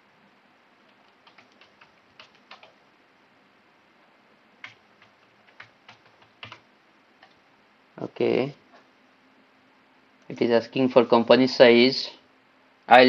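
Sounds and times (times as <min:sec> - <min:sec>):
faint keyboard typing: 0:00.8 - 0:02.9, 0:04.6 - 0:07.5.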